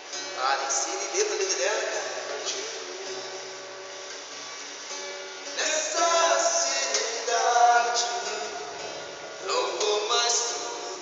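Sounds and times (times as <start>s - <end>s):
strummed acoustic guitar: 0.0s - 11.0s
man singing: 0.4s - 3.6s, 5.6s - 8.8s, 9.4s - 11.0s.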